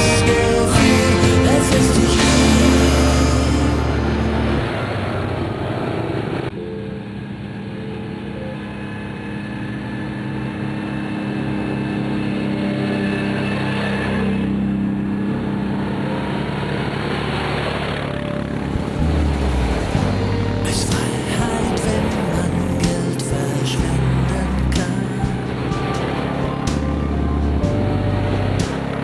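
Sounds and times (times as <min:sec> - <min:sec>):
quad bike engines passing: 0:08.6 - 0:29.0.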